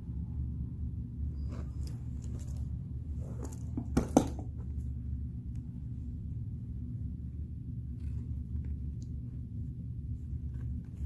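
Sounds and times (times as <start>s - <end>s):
steady low hum: 0.0s - 11.0s
metal clasps clinking: 1.6s - 4.5s.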